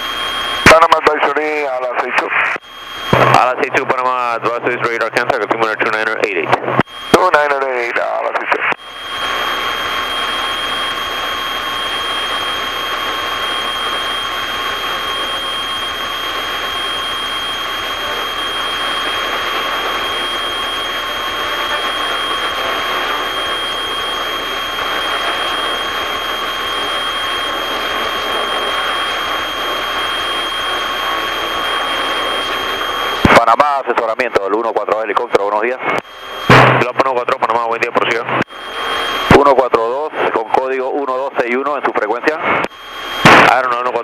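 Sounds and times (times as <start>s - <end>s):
high-pitched whine: 0.0s - 44.0s
light aircraft engine drone: 8.8s - 33.3s, 35.8s - 41.8s.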